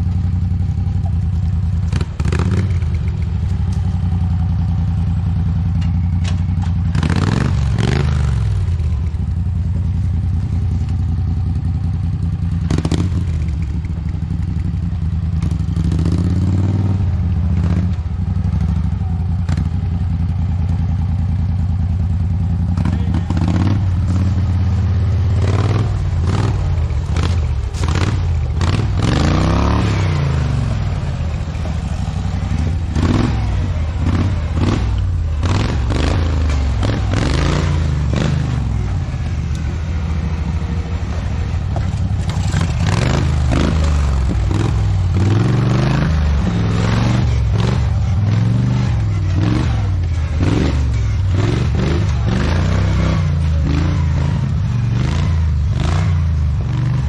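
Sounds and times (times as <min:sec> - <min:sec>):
tractor engine revving: 0:01.4 - 0:09.1, 0:21.5 - 0:57.0.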